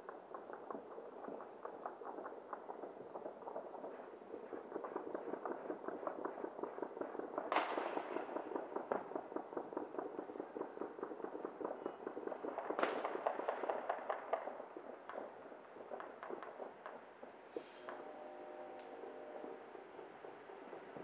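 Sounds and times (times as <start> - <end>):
firecracker pops crackling: 0.0 - 21.0
loud firework bangs: 7.4 - 14.6.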